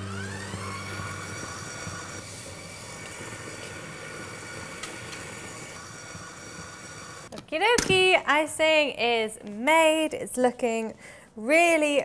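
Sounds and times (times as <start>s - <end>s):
stand mixer motor whir: 0.0s - 7.3s.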